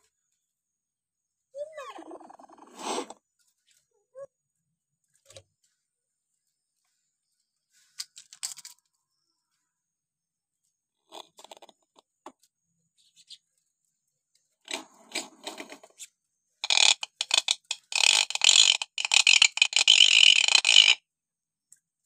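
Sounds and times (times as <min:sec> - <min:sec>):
scratchy rasping bird chatter: 0:11.1 - 0:12.0, 0:14.6 - 0:21.0.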